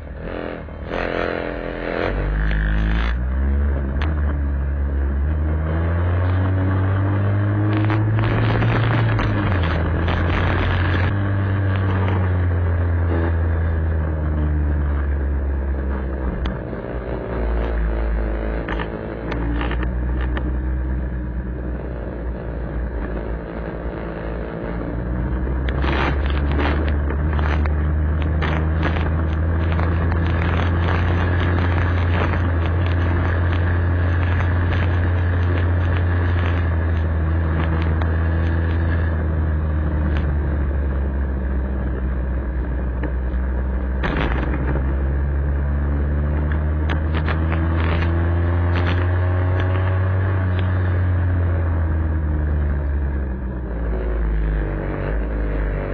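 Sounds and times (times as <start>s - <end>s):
sharp thumps: 42.9s - 45.2s.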